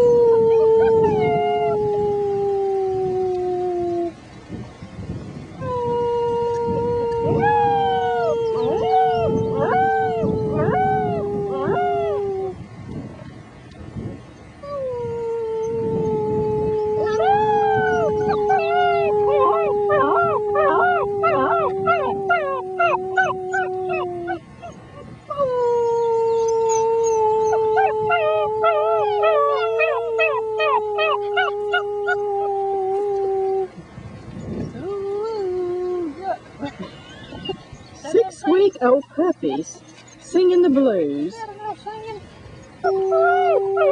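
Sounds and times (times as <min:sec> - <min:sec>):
puppies howling: 0:00.0 - 0:02.0, 0:05.6 - 0:12.6, 0:14.6 - 0:33.7, 0:42.8 - 0:43.9
person howling low note: 0:00.0 - 0:04.2, 0:05.6 - 0:12.6, 0:14.7 - 0:24.5, 0:25.3 - 0:33.8, 0:42.8 - 0:43.9.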